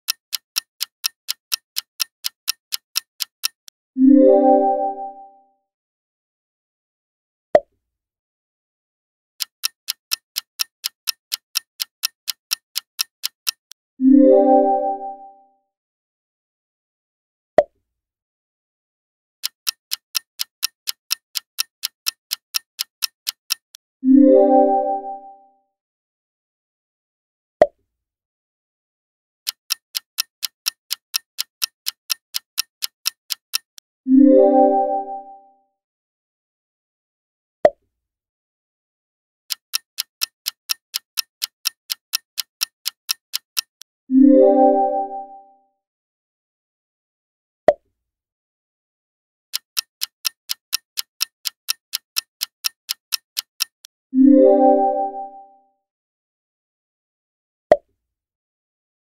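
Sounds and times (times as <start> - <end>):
fast clock ticking: 0.0 - 3.8, 9.4 - 13.8, 19.4 - 23.8, 29.5 - 33.8, 39.5 - 43.9, 49.5 - 53.9
sharp click: 39.5 - 43.9, 49.6 - 53.9.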